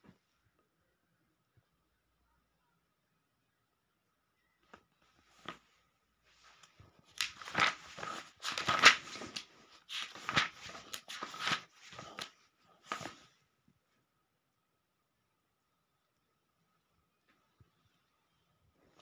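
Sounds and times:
book pages turning: 5.2s - 13.3s.

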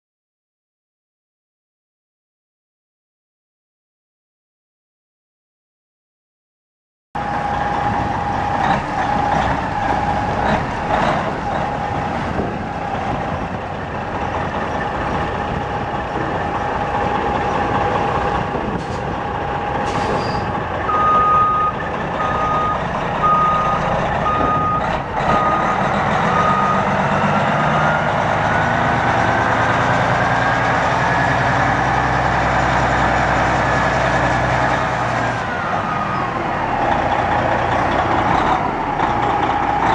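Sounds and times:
diesel truck engine running: 7.2s - 39.9s
repeated beep: 20.9s - 25.7s.

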